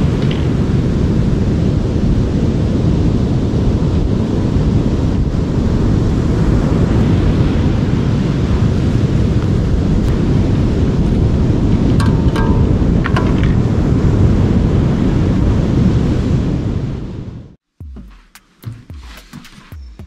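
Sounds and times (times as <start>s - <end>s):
wind buffeting microphone: 0.0s - 17.6s.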